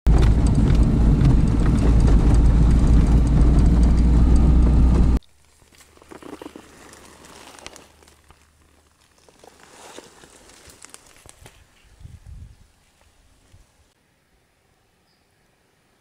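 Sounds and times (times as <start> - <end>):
car engine and road noise: 0.0 - 5.2
rattles and knocks from bumps: 0.1 - 5.2
faint outdoor rustling: 5.2 - 16.0.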